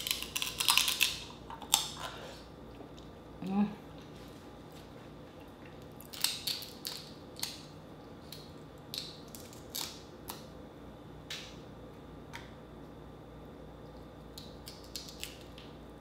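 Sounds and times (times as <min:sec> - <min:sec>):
crab shell cracking: 0:00.0 - 0:02.0, 0:06.0 - 0:10.5, 0:14.3 - 0:15.7.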